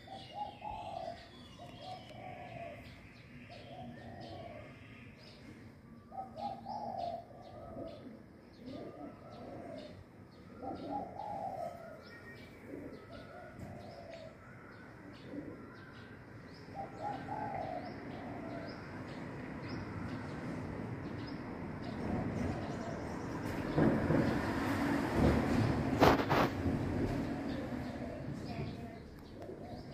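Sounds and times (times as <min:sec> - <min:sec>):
dove cooing: 0:00.0 - 0:04.8, 0:06.1 - 0:14.4, 0:15.0 - 0:15.9, 0:16.7 - 0:19.0, 0:27.4 - 0:29.9
small birds chirping: 0:00.0 - 0:24.5, 0:27.2 - 0:29.9.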